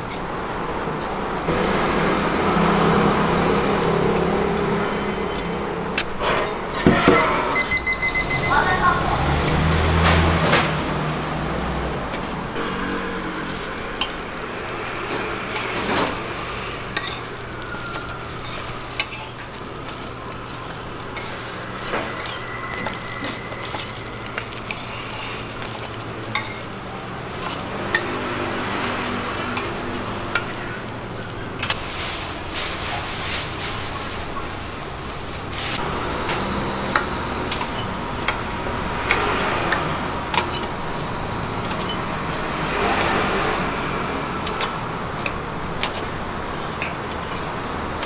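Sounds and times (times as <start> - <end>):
food sizzling in pan: 12.6 - 35.8.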